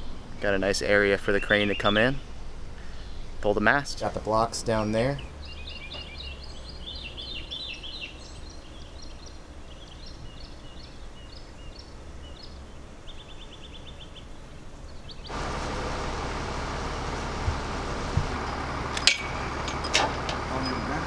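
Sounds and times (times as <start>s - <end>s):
small birds chirping: 0.0s - 15.5s
low wind rumble: 0.0s - 21.0s
loud steady noise: 15.3s - 21.0s.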